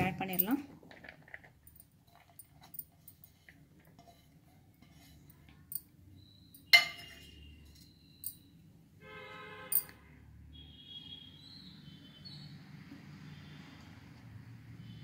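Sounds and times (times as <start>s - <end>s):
glass bowl clinking on surface: 6.6s - 8.4s.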